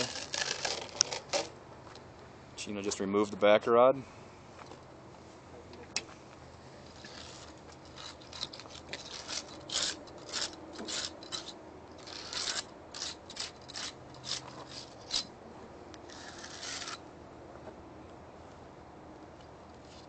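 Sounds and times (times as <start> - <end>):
wire brush scraping: 0.0 - 1.5, 6.8 - 15.3, 16.0 - 17.0, 19.8 - 20.0.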